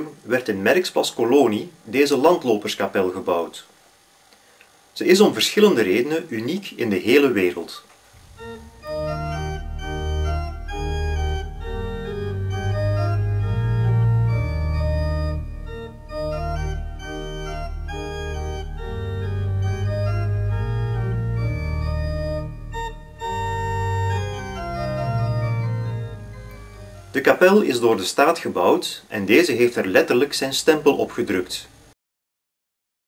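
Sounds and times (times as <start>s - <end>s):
organ music: 8.3s - 28.8s.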